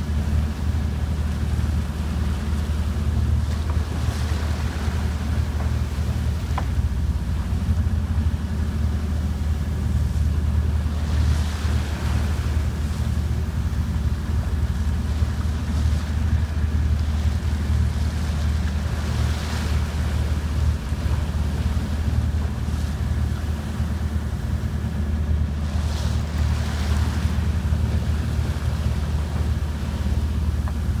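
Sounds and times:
boat engine droning: 0.0 - 31.0
water splashing along a hull: 0.0 - 31.0.

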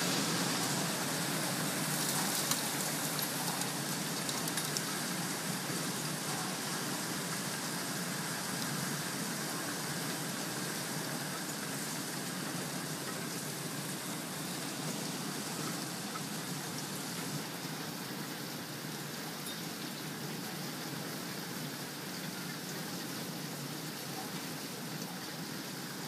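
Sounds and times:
hail and rain on concrete: 0.0 - 19.3.

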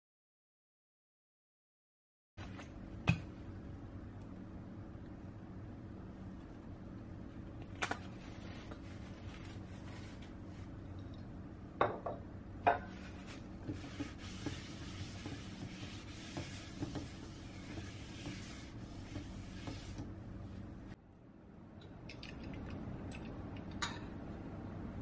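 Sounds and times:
paper towel rubbing frying pan: 8.1 - 10.8, 12.9 - 21.0.

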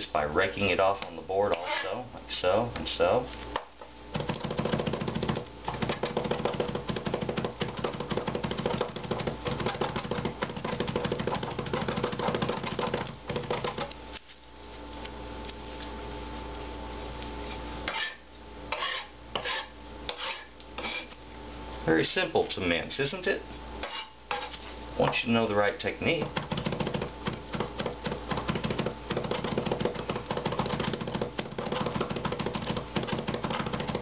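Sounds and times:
steady background hum: 0.0 - 34.0
knife chopping on cutting board: 4.2 - 13.9, 26.2 - 34.0.

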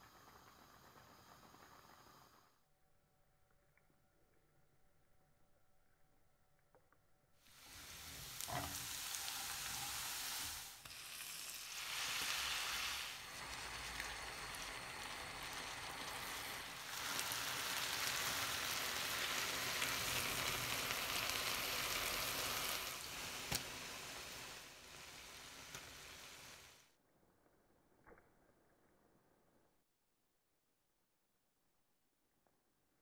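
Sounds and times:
onions sizzling in oil: 7.4 - 26.9.

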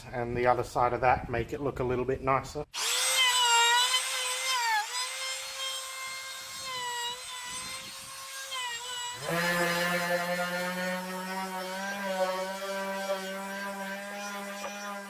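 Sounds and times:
palm sander humming: 2.8 - 15.0
trim router high whine: 2.8 - 15.0.

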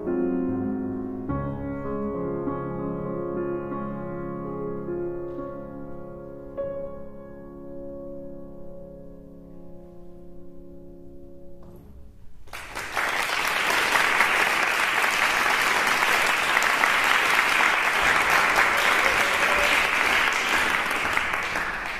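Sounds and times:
piano chord: 0.0 - 12.3
audience applause: 12.5 - 21.9.

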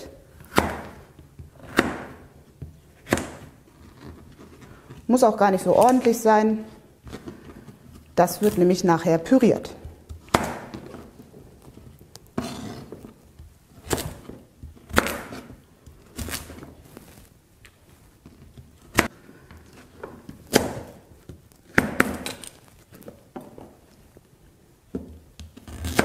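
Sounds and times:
knife chopping on cutting board: 0.4 - 2.3, 3.0 - 3.5, 9.8 - 11.0.

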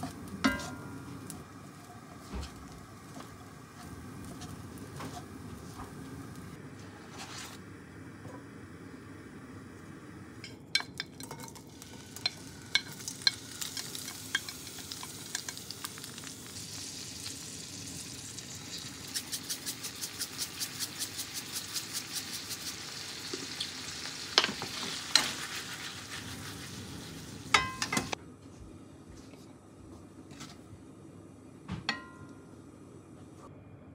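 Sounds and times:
steak sizzling in frying pan: 11.7 - 28.2.

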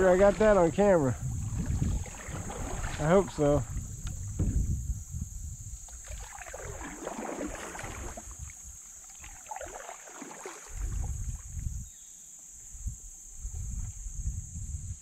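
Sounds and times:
paddle splashing water: 0.0 - 4.7, 5.8 - 11.7
wind buffeting microphone: 0.0 - 8.8, 10.7 - 12.0, 12.7 - 15.0.

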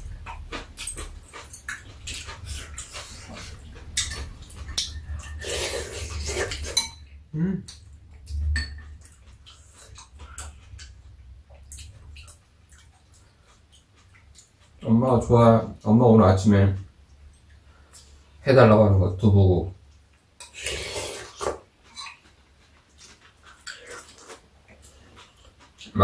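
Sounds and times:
chewing: 0.1 - 6.8, 7.6 - 14.9, 19.9 - 26.0
spoons and chopsticks clinking bowls: 0.5 - 7.1
slurping: 1.3 - 6.8, 20.4 - 25.8.

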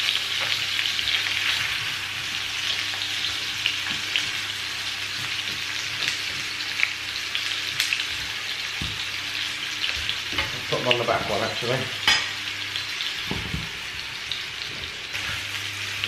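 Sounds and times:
meatballs sizzling in hot oil: 0.0 - 16.0.

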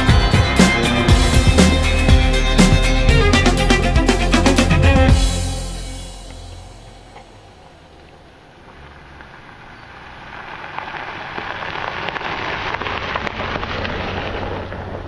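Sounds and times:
low engine hum: 0.0 - 15.0
tyres crunching over gravel: 6.2 - 15.0.

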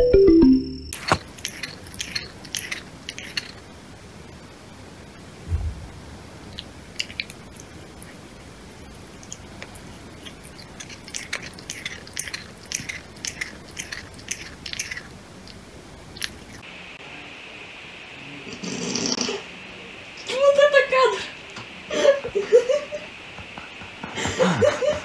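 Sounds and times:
cat mouth clicks: 1.0 - 3.6, 10.2 - 15.6.

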